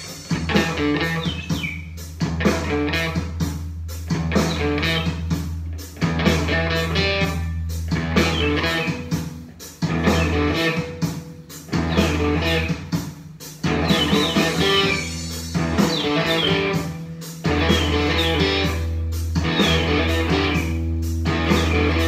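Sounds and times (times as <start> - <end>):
electric guitar blues-rock riff: 0.0 - 22.0.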